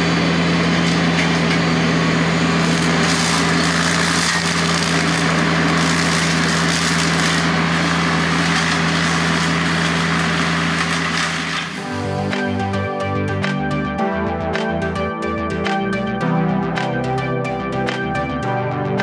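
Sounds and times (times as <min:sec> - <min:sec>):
tractor diesel engine: 0:00.0 - 0:18.2
cutter chopping brush and wood: 0:02.4 - 0:12.6.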